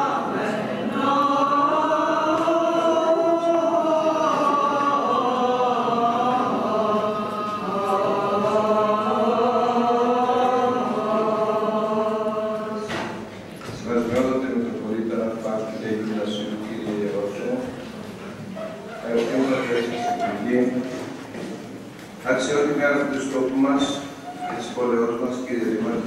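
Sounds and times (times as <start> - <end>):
voices chanting together: 0.0 - 13.3.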